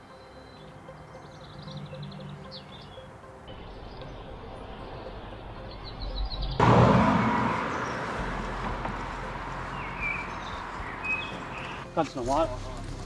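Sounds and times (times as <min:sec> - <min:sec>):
bird chirping: 0:00.0 - 0:06.6, 0:09.7 - 0:11.9
car passing by: 0:04.9 - 0:11.9.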